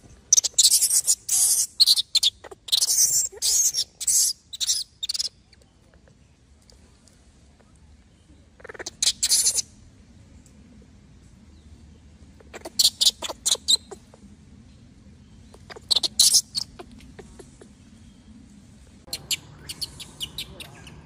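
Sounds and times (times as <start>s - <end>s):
infant monkey squealing: 0.3s - 5.3s, 8.6s - 9.7s, 12.4s - 14.2s, 15.6s - 17.7s, 19.1s - 21.0s.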